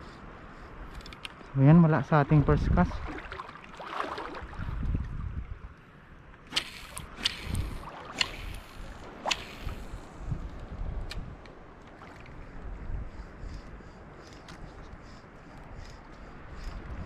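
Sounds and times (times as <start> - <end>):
paddle splashes: 2.9 - 4.9.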